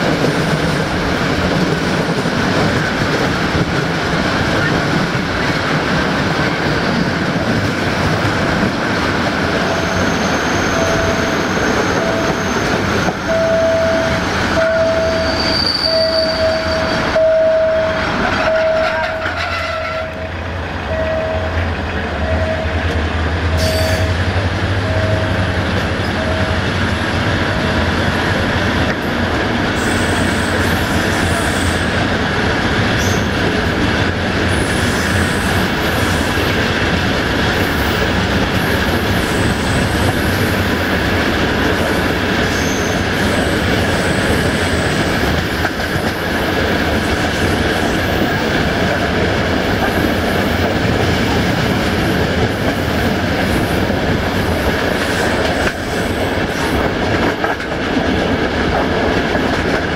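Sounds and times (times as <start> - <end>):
train rumbling: 0.0 - 59.9
high wheel squeals: 9.6 - 20.0, 42.5 - 43.1
level crossing warning bell: 10.8 - 12.4, 13.3 - 19.1, 20.9 - 21.6, 22.2 - 22.9, 24.8 - 26.8.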